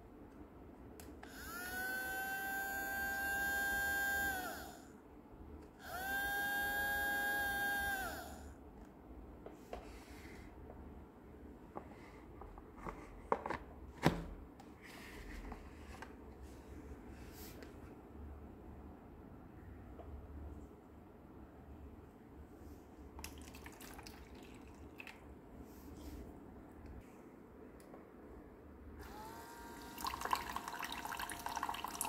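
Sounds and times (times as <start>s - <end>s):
small water pump whirring: 1.2s - 5.0s, 5.7s - 8.6s, 23.2s - 25.3s, 29.0s - 32.0s
plastic clicks and knocks: 12.4s - 14.4s.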